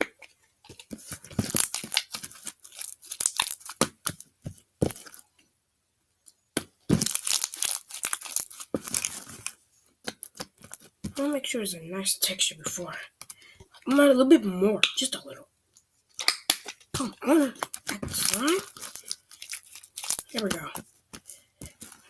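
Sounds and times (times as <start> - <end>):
sticky slime snapping: 16.2 - 17.0.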